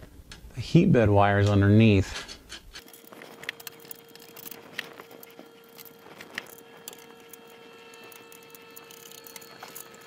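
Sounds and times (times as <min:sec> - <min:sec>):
faint steady hum: 0:00.0 - 0:10.0
small clicks and knocks: 0:02.2 - 0:10.0.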